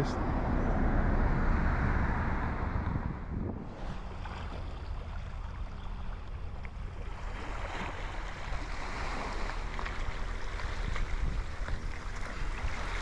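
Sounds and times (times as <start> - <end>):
engine and tyre rumble: 0.0 - 13.0.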